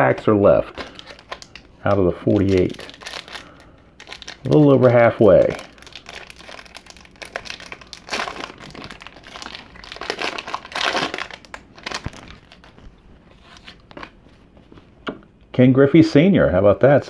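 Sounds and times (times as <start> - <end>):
wrapper crinkling: 0.0 - 14.2.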